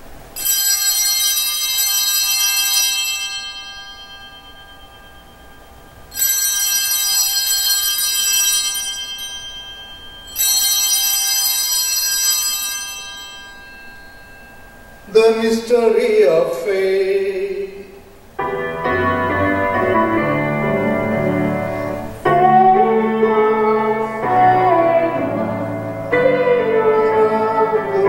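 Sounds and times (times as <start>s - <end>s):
altar bells ringing: 0.4s - 16.7s.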